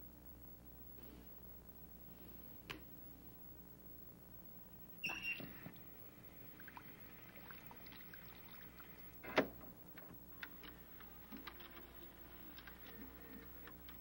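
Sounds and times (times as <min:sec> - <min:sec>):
low hiss: 0:00.0 - 0:14.0
faint clicks and ticks: 0:08.6 - 0:14.0.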